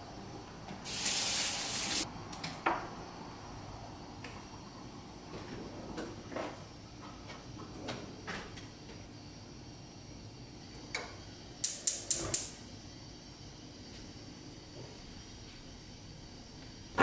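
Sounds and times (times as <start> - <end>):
gas burner igniter clicking: 11.0 - 12.6.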